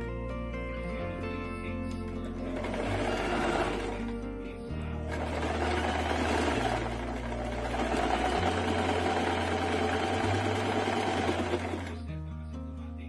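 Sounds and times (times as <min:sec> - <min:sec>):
sewing machine stitching: 0:02.1 - 0:04.2, 0:05.0 - 0:12.1.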